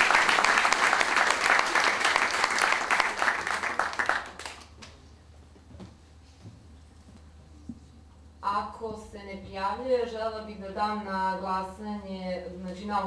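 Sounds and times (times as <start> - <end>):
audience applause: 0.0 - 4.9
steady low hum: 0.0 - 13.0.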